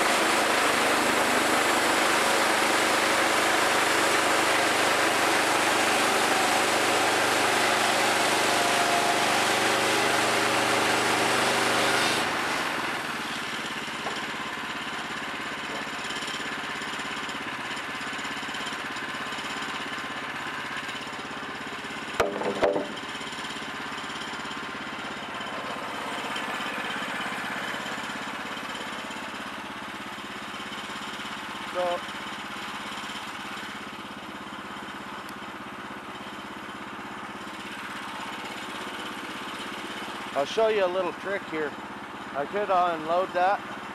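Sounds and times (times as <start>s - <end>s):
band blade cutting log: 0.0s - 14.4s, 22.2s - 23.0s
engine idling: 0.0s - 43.9s
sawmill engine running under load: 0.0s - 43.9s
lumber knocking: 22.2s - 23.1s.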